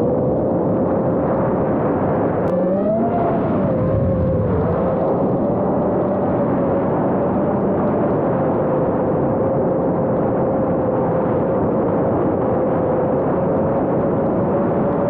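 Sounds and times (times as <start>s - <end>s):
rushing air noise: 1.2s - 6.8s.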